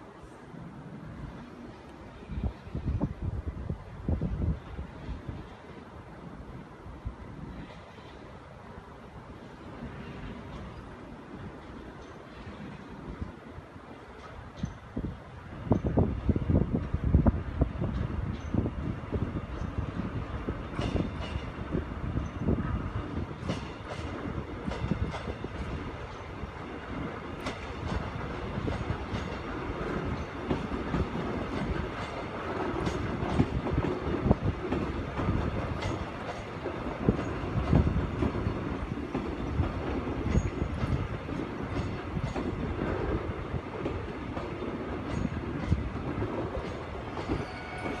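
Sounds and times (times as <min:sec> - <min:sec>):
train rumble: 0:00.0 - 0:48.0
train wheels clicking over joints: 0:17.8 - 0:48.0.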